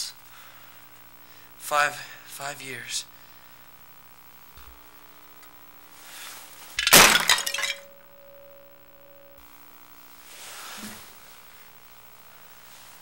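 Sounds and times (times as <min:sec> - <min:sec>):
shards clinking: 0:06.8 - 0:08.0
ceramic vase smashing: 0:06.8 - 0:08.1.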